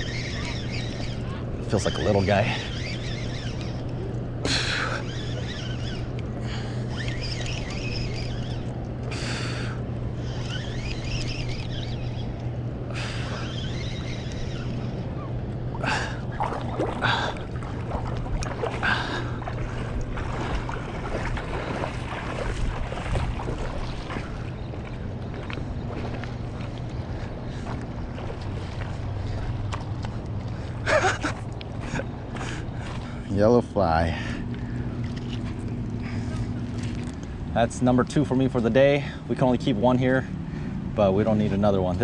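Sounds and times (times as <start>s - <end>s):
low steady hum: 0.0s - 42.0s
rushing river water: 15.7s - 30.0s
wind on microphone: 16.3s - 29.6s.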